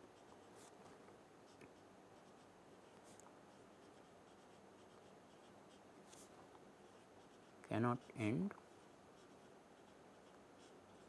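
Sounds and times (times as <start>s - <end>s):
marker pen scratching on paper: 0.0s - 11.0s.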